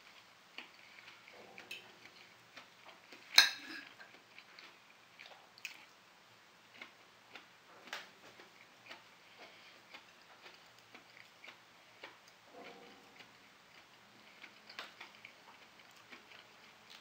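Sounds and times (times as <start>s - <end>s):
cutlery scraping on a plate: 3.3s - 4.1s.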